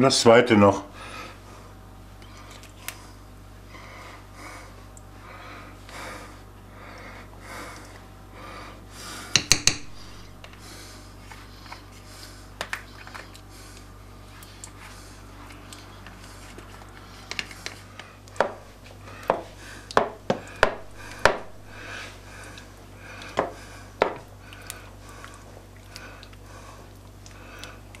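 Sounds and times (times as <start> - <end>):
spoon tapping tub: 9.4 - 9.9.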